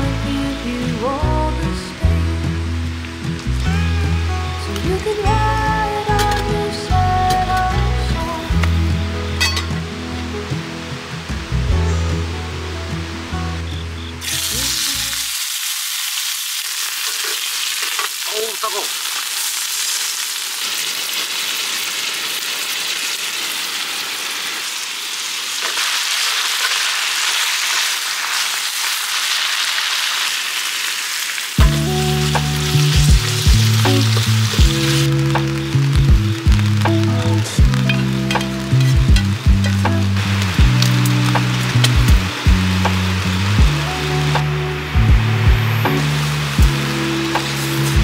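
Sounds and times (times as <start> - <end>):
music: 0.0 - 15.4, 31.6 - 48.0
food sizzling in a skillet: 8.5 - 10.0, 14.2 - 48.0.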